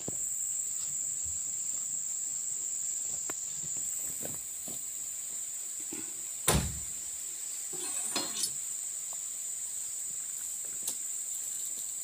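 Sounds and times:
insects shrilling: 0:00.0 - 0:12.0
faint clinks and rustles: 0:07.7 - 0:08.6.

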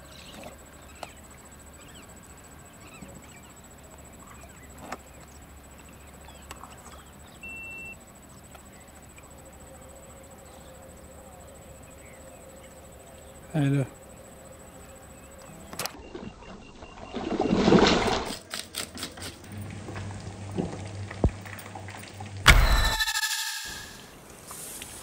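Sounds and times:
thin steady high tone: 0:00.0 - 0:16.1, 0:22.5 - 0:24.7
faint chirps: 0:00.0 - 0:17.2
low hum: 0:19.5 - 0:24.3
short steady whistle: 0:22.5 - 0:24.2.

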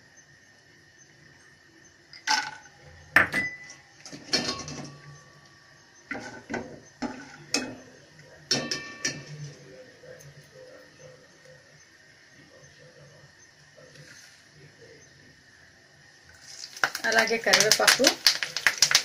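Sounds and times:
peanuts frying in oil: 0:00.0 - 0:19.0
metal utensil knocking on pan: 0:08.5 - 0:09.5.

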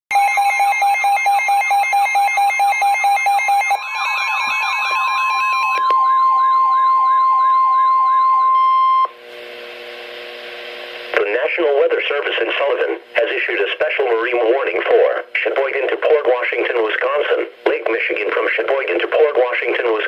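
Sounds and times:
warbling siren: 0:00.1 - 0:09.1
weather radio alarm beeps: 0:00.1 - 0:09.2
steady high tone: 0:00.2 - 0:09.2
radio hiss: 0:09.2 - 0:20.0.

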